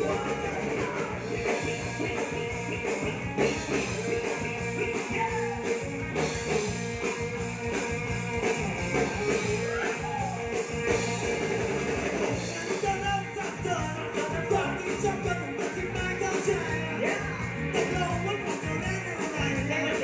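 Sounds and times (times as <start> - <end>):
man singing into a microphone: 0.0 - 3.1, 4.8 - 5.8, 12.4 - 20.0
bass guitar: 0.0 - 20.0
drum kit beat: 0.0 - 20.0
electric guitar: 0.0 - 20.0.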